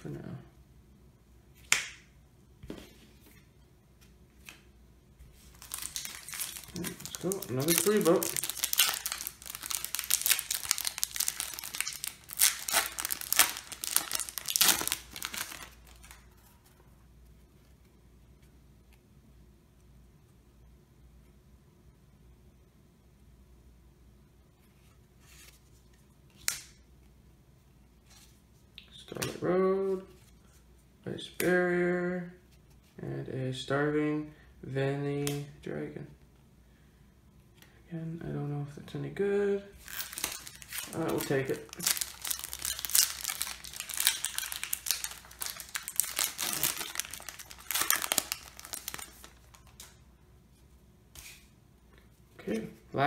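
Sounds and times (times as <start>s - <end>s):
foil wrapper crinkling and tearing: 5.5s - 16.3s, 39.8s - 50.0s
cards sliding and flipping: 51.1s - 51.5s.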